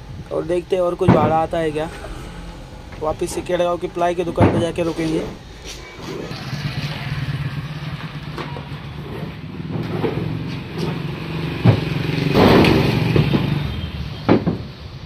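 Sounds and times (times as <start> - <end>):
motorcycle engine running: 5.6 - 8.9.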